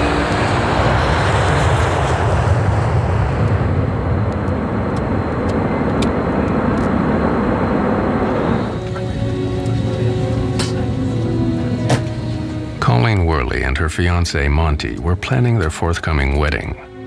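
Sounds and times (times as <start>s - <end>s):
jet engines roaring: 0.0s - 17.0s
music: 8.5s - 17.0s.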